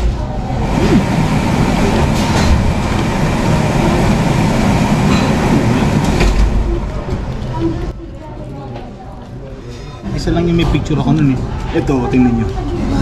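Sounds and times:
loud low rumbling noise: 0.0 - 8.0.

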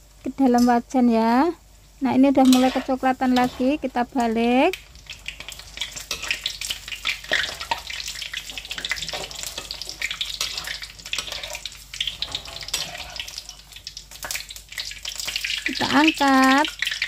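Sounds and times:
food deep-frying in oil: 0.0 - 17.0.

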